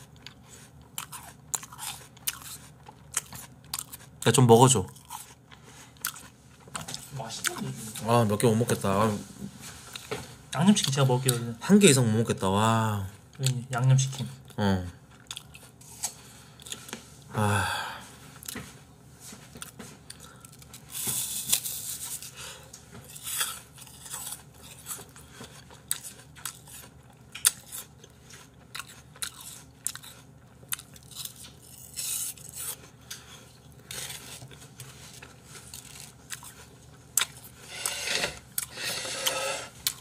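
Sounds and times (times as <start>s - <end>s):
crunching apple being chewed: 0.0s - 7.2s, 14.4s - 17.0s, 19.5s - 22.4s, 23.0s - 40.0s.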